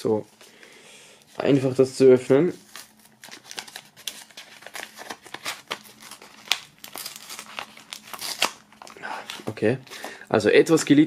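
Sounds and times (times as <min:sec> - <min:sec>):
paper envelope crackling open: 0:02.6 - 0:09.9.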